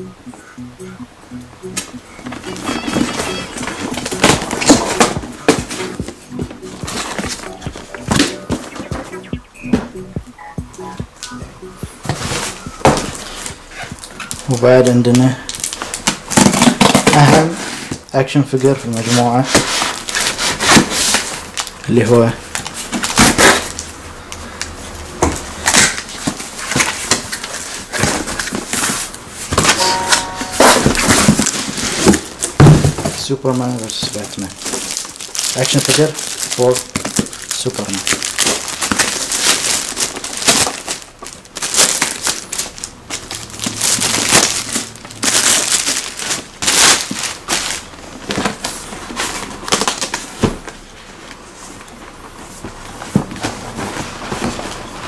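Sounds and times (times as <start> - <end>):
plastic wrap and cardboard rustling: 2.6 - 8.8, 12.0 - 55.0.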